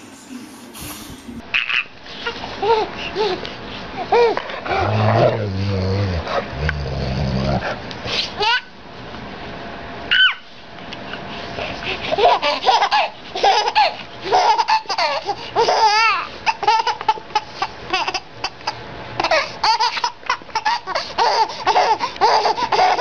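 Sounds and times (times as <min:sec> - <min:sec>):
baby laughing: 0:01.6 - 0:04.4, 0:08.4 - 0:08.7, 0:11.9 - 0:23.0.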